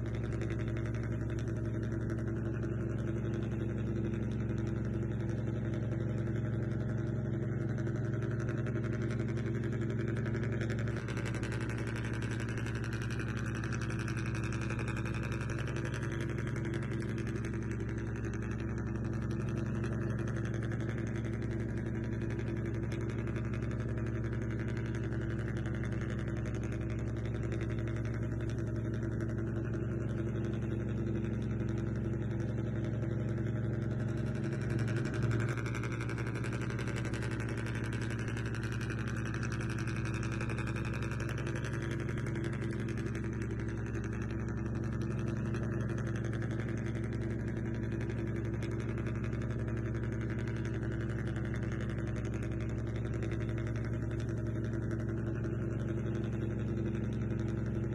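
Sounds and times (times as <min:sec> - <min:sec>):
model boat engine drone: 0:08.5 - 0:29.4, 0:33.8 - 0:56.4.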